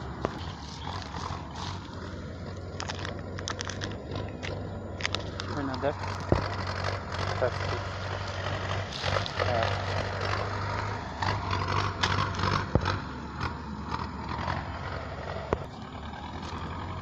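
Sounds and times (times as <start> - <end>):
low steady hum: 0.0 - 17.0
plastic wrapper crinkling: 2.8 - 6.3.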